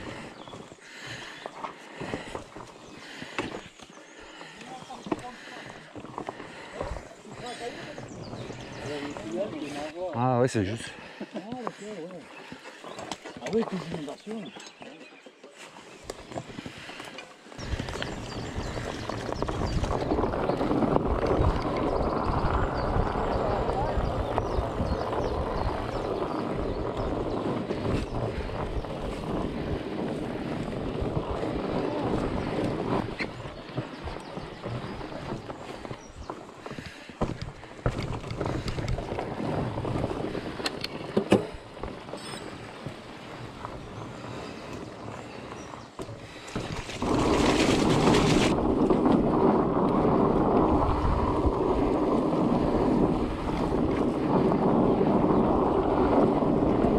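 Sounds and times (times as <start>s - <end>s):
bike tyres rolling on dirt: 0.0s - 56.9s
wind on microphone: 6.6s - 9.9s, 17.6s - 56.9s
bike clicks and rattles: 16.0s - 56.8s.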